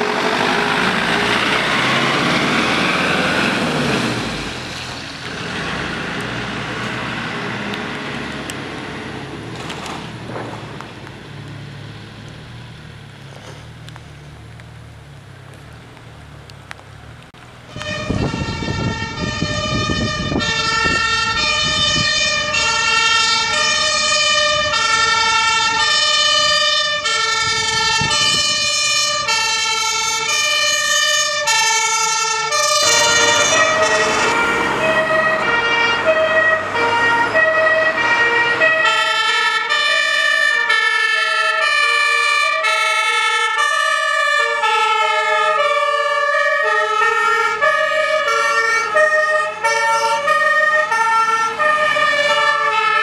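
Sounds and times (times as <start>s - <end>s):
fire engine two-tone siren: 0.0s - 5.1s, 17.7s - 53.0s
truck engine rumbling: 0.0s - 53.0s.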